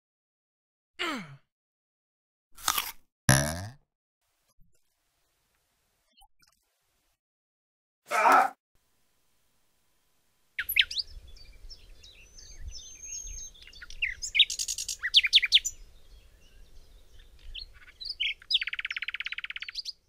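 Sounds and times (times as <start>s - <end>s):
songbird chirps and trills: 10.6s - 20.0s.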